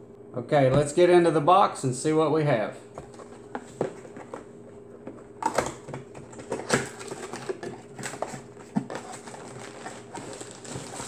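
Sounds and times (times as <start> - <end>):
cardboard box being opened: 6.2 - 11.0.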